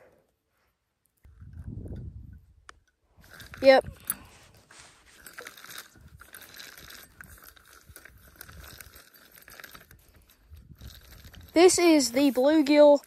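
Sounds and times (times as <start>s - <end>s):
fishing reel cranking: 2.8s - 13.0s.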